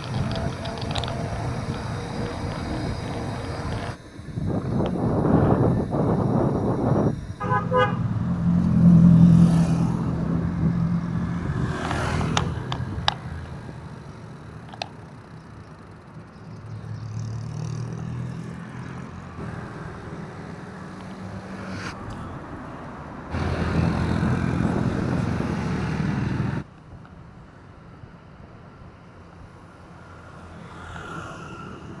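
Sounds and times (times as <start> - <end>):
wind rumbling on microphone: 0.0 - 15.0, 19.3 - 27.5
cars passing: 0.0 - 32.0
car horn toot: 7.4 - 8.3.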